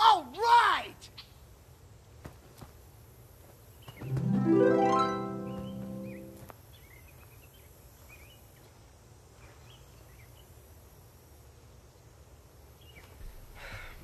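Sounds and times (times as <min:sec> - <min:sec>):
small birds chirping: 0:03.4 - 0:04.2, 0:05.4 - 0:11.0, 0:12.6 - 0:14.0.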